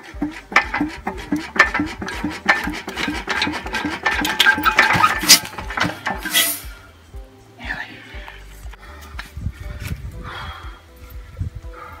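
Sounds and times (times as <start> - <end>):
metallic clatter: 0.0 - 6.7
stationary engine chuffing: 0.0 - 6.8.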